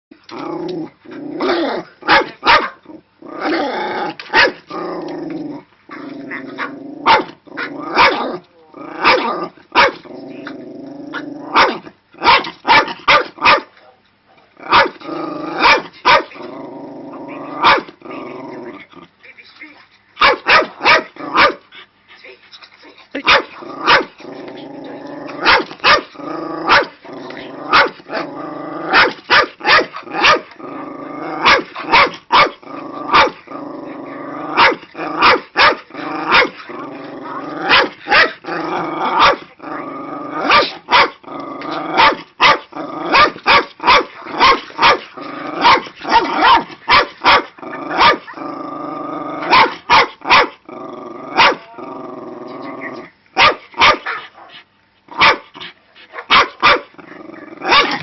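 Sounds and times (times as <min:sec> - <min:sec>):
dog growling: 0:00.2 - 0:13.1, 0:14.5 - 0:19.2, 0:20.7 - 0:21.9, 0:22.7 - 0:53.2, 0:56.9 - 0:58.0
dog barking angrily: 0:01.4 - 0:02.8, 0:03.4 - 0:04.7, 0:06.6 - 0:10.1, 0:11.5 - 0:13.8, 0:14.6 - 0:16.5, 0:17.5 - 0:18.0, 0:20.2 - 0:21.6, 0:23.2 - 0:24.2, 0:25.3 - 0:27.0, 0:27.6 - 0:33.5, 0:34.4 - 0:39.5, 0:40.3 - 0:41.2, 0:41.8 - 0:48.5, 0:49.4 - 0:50.6, 0:51.3 - 0:51.7, 0:53.4 - 0:58.0.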